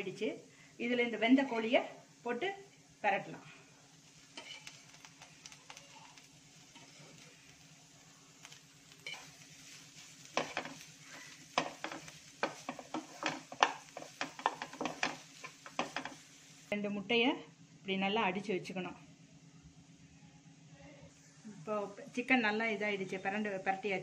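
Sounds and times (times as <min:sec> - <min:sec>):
light sizzle: 0:00.0 - 0:24.0
wooden spatula scraping a pan: 0:04.3 - 0:05.9, 0:06.7 - 0:07.4, 0:09.0 - 0:16.4.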